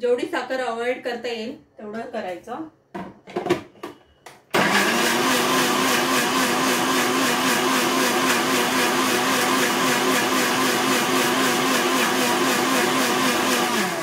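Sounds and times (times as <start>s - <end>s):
mixer grinder motor whirring: 4.5s - 14.0s.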